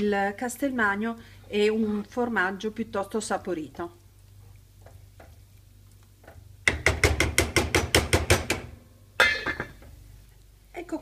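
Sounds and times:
spoon knocking saucepan: 6.2 - 9.9.

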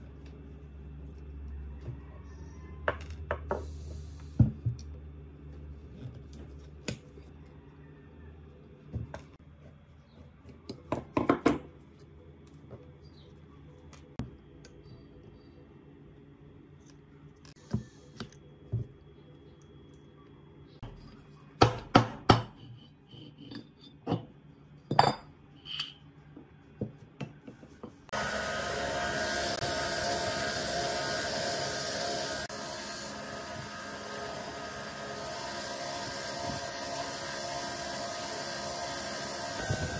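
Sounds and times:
bench grinder buffing wheel: 28.1 - 39.9.

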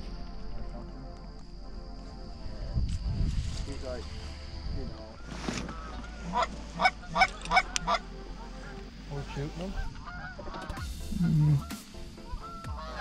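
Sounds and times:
geese honking: 4.5 - 13.0.

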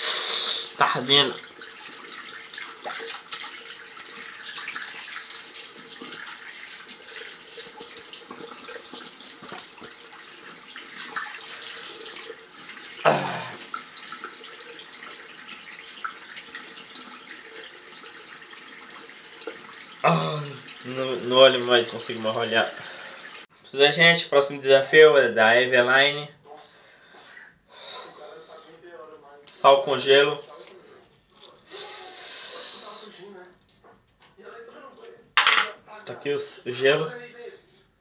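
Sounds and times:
small water splashes: 1.3 - 17.8
tap running into sink: 8.2 - 10.0.

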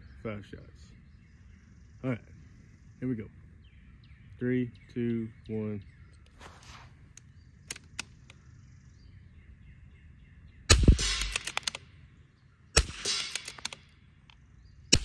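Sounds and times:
rifle bolt clicking: 7.1 - 8.4, 11.0 - 11.9, 12.8 - 14.4
rifle shots: 10.7 - 11.9, 12.8 - 13.9.

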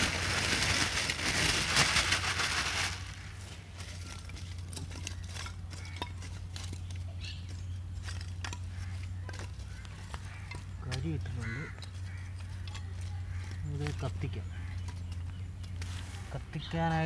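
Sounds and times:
plastic bag rustling: 0.0 - 4.6.

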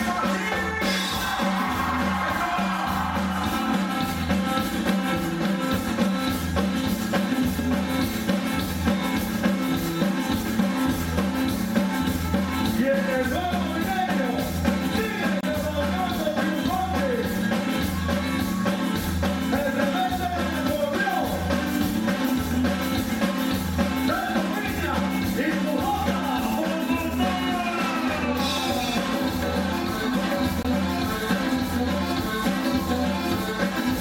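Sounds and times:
bass beat: 0.0 - 34.0
live band playing cumbia: 0.0 - 34.0
person singing: 12.6 - 21.5, 24.0 - 31.0.

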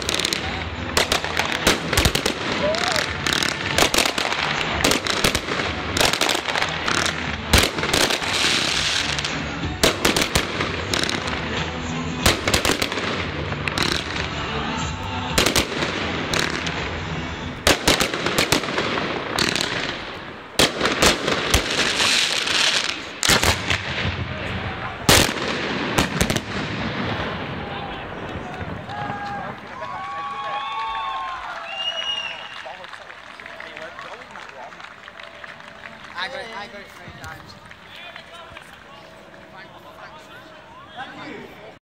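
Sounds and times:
fireworks bangs: 0.0 - 30.6
fireworks crackling: 0.0 - 41.8.

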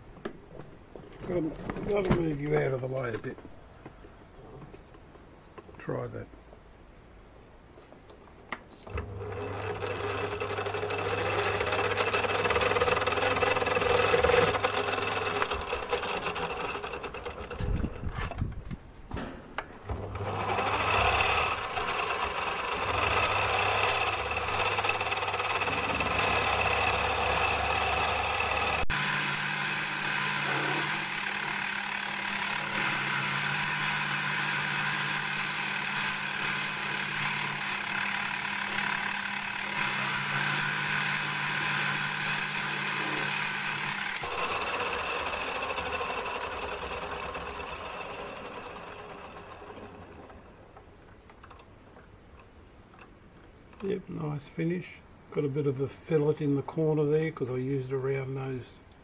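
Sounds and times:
lathe motor whine: 8.9 - 18.0, 19.9 - 50.5.

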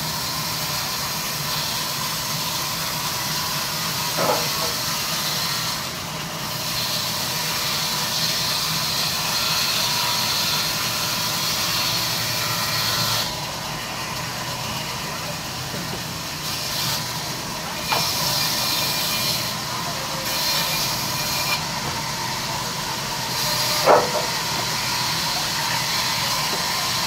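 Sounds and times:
low hum of saw drive: 4.0 - 4.9, 20.6 - 26.9.

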